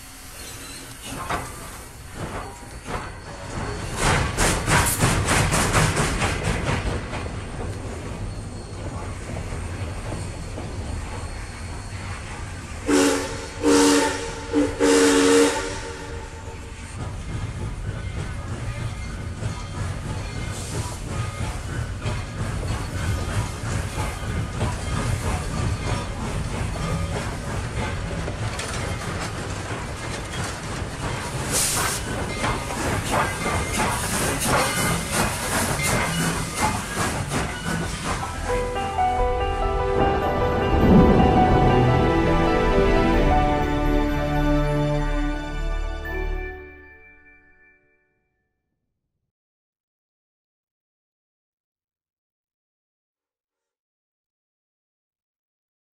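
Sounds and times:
steam hissing: 0.0 - 6.7, 31.0 - 38.6
steam locomotive chuffing: 0.0 - 45.0
train running rumble: 0.0 - 45.9
train whistle blasts: 12.9 - 16.8.

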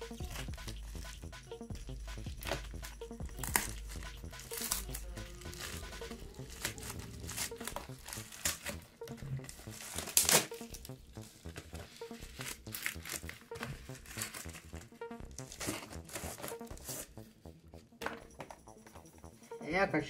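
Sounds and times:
plastic ripping: 3.4 - 10.9, 11.5 - 14.7
plastic packaging crinkling: 3.4 - 14.8.

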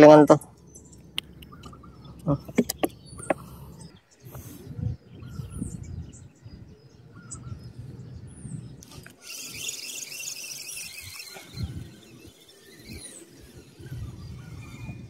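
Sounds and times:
bird chirps: 0.3 - 15.0
fishing rod handling knocks: 2.4 - 3.4.

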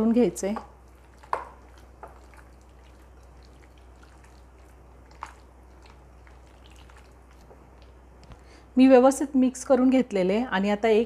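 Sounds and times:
hands squishing wet marinade: 0.4 - 8.5.

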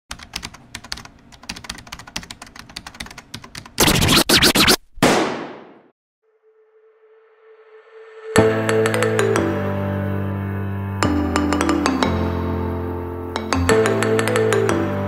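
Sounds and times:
rapid clicks like typing: 0.1 - 4.3
loud bursts of noise: 3.8 - 4.8.

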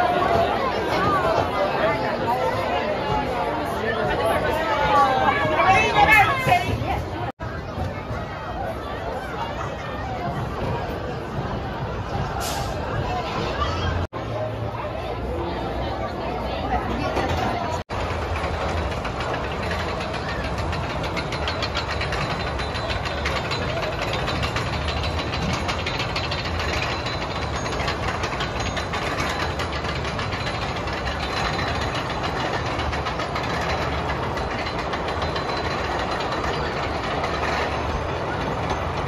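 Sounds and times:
roller coaster chain lift rumble: 0.0 - 39.0
chain clicking and clanking: 18.0 - 39.0.

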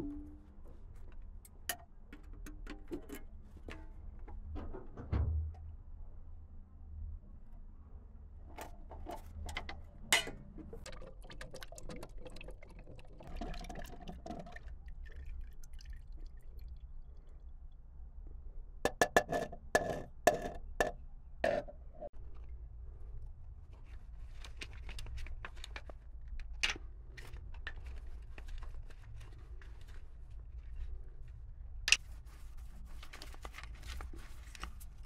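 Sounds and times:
low steady hum: 0.0 - 18.8.

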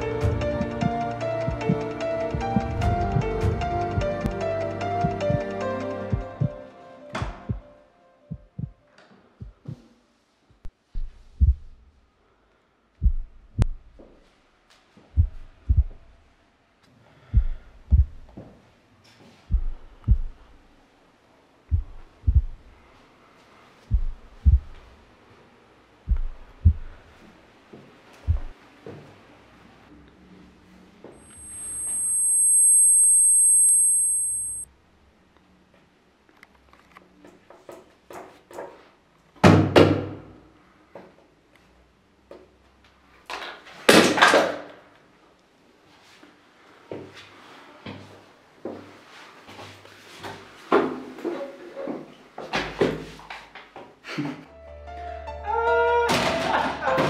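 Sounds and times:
muffled heartbeat thumps: 5.0 - 5.5, 6.1 - 6.6, 7.2 - 7.7, 8.3 - 8.8, 9.4 - 9.8, 10.9 - 11.9, 13.0 - 14.0, 15.1 - 16.1, 17.3 - 18.4, 19.5 - 20.6, 21.7 - 22.8, 23.9 - 25.0, 26.1 - 27.1, 28.2 - 28.6
high-pitched electronic ringing tone: 31.2 - 34.6.

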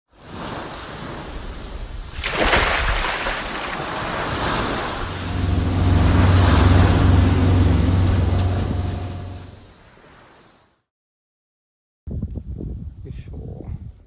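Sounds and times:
ocean waves washing: 0.1 - 10.7
motorboat engine running: 3.9 - 9.7.

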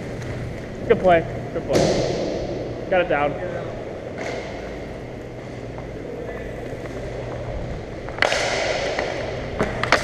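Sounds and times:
skates rumbling on ice: 6.7 - 10.0
sharp crack: 8.1 - 10.0.

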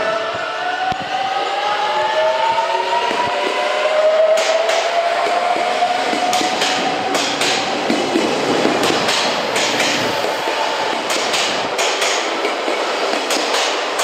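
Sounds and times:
train rumble: 0.0 - 14.0
train wheels clacking: 3.0 - 14.0.

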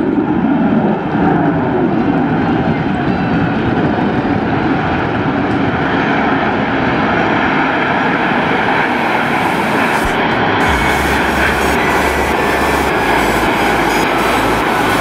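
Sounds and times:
jets flying by: 7.4 - 15.0.

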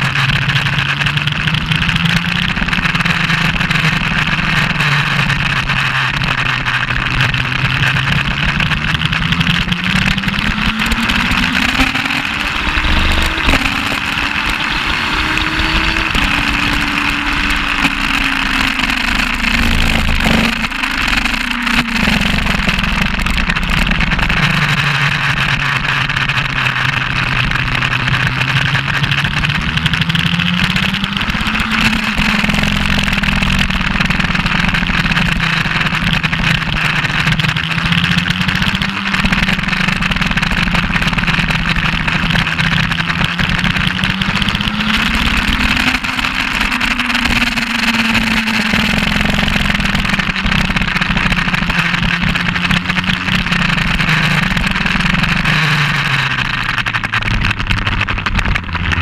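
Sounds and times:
motorcycle engine under racing load: 0.0 - 59.0
wind rushing: 10.4 - 20.6.

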